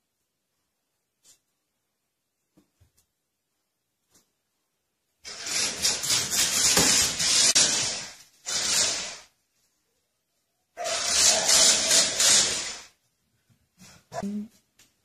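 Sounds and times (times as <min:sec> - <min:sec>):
toy car whirring on tile: 0:05.2 - 0:09.4, 0:10.8 - 0:13.0.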